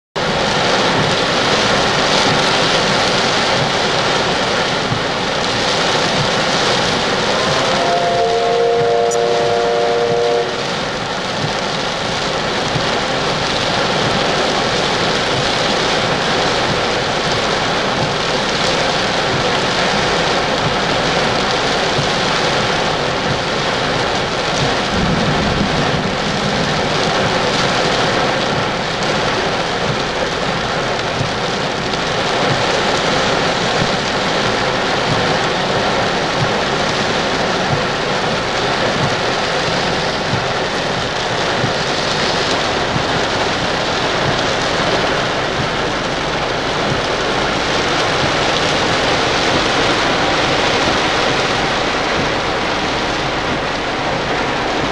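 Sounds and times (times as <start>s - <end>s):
heavy rain pouring: 0.1s - 54.9s
steam locomotive whistle: 7.2s - 10.9s.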